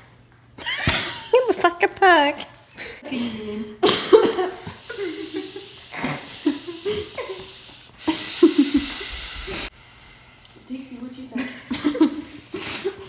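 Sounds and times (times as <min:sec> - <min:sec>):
person giggling: 0:03.0 - 0:09.7.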